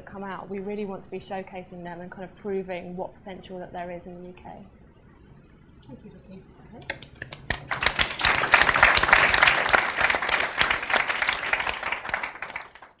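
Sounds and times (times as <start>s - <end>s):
audience applauding: 6.9s - 13.0s.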